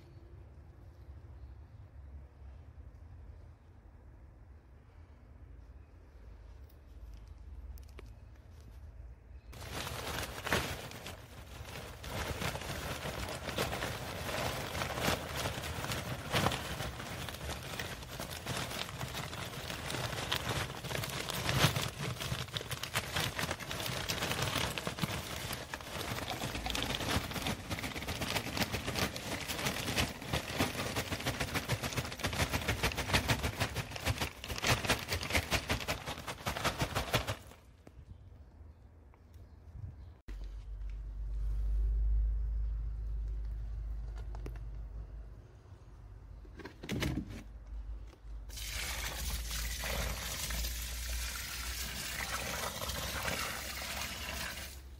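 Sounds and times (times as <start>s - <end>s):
charcoal pouring rattle: 9.6s - 37.6s, 48.5s - 54.9s.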